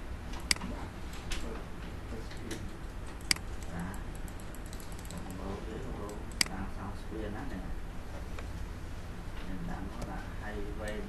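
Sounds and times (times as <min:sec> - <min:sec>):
low steady hum: 0:00.0 - 0:11.0
computer mouse clicks: 0:00.3 - 0:01.5, 0:02.3 - 0:06.6, 0:10.8 - 0:11.0.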